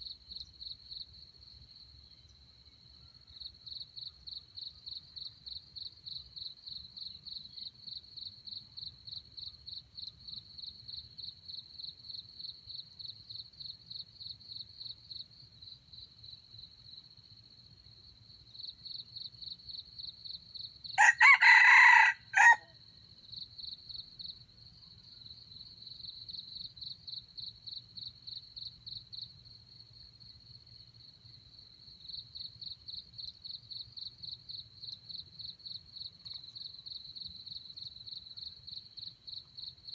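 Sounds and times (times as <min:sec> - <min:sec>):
insects chirping: 0:00.0 - 0:39.9
rooster crowing: 0:21.0 - 0:22.7.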